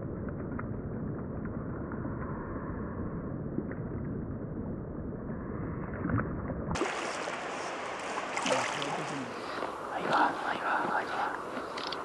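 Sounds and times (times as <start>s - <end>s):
flowing river water: 6.8s - 12.0s.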